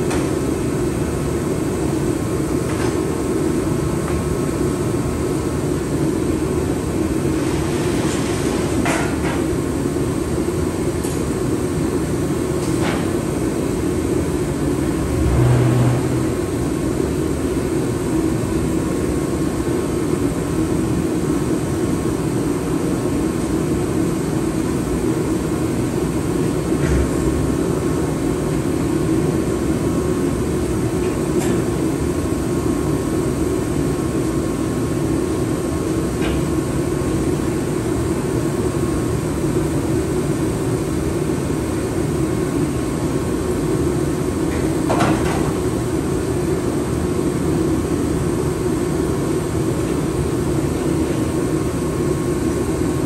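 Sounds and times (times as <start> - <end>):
mechanical drone: 14.8 - 17.3.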